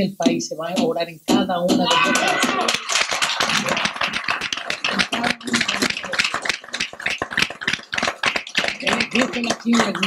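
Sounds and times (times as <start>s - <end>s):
audience applauding: 1.9s - 10.0s.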